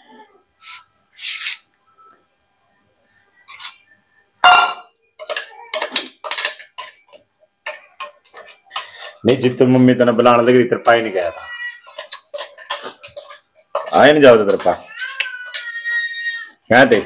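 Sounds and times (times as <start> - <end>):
steel spoon scraping and clinking: 11.8 - 14.0.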